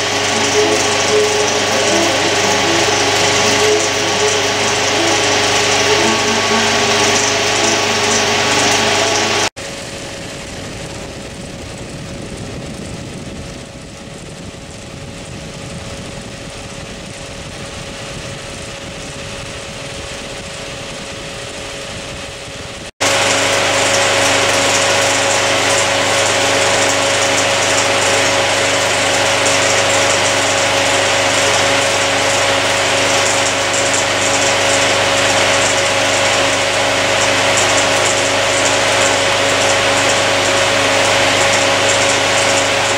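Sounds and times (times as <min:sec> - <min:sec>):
projector mechanical whir: 0:00.0 - 0:13.6, 0:23.0 - 0:42.9
steady whine: 0:00.0 - 0:42.9.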